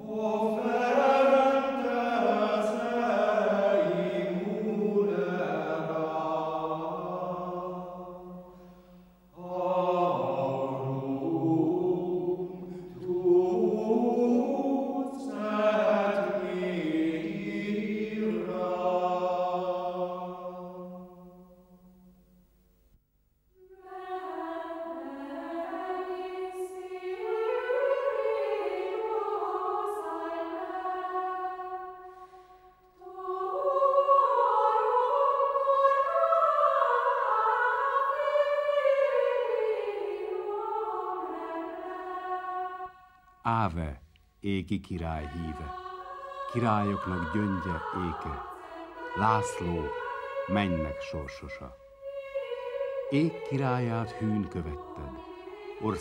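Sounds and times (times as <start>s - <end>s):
higher voices singing in parts: 0.0s - 8.6s, 9.3s - 21.3s, 23.6s - 56.0s
low men's voices chanting: 44.4s - 51.7s.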